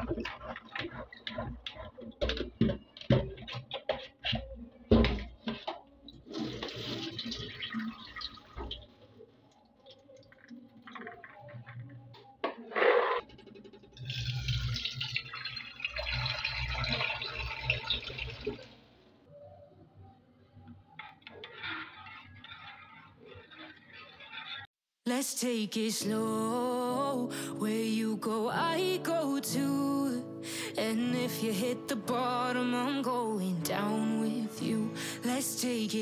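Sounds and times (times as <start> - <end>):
tap running: 0.0 - 5.8
tap filling pot: 0.0 - 6.9
water splashing into sink: 0.0 - 11.9, 13.7 - 18.8.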